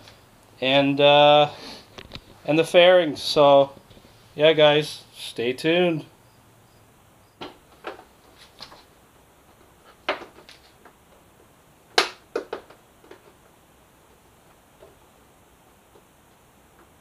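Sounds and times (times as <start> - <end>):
plastic panel clicks and knocks: 12.0 - 13.3.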